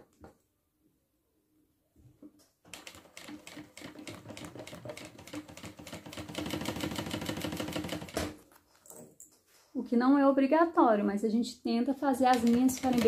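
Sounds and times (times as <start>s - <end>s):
industrial sewing machine stitching: 2.7s - 8.3s.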